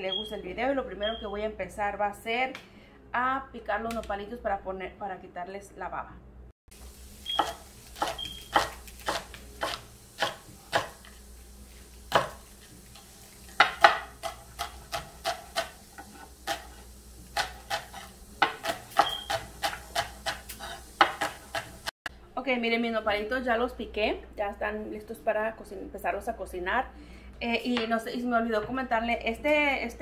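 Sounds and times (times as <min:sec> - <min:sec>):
knife chopping on wooden board: 0:07.3 - 0:11.1, 0:12.1 - 0:12.5, 0:13.6 - 0:21.8.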